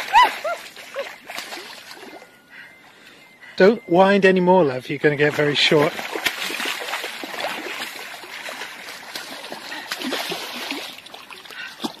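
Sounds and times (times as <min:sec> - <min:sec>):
fish splashing in water: 0:00.0 - 0:02.2, 0:05.3 - 0:12.0.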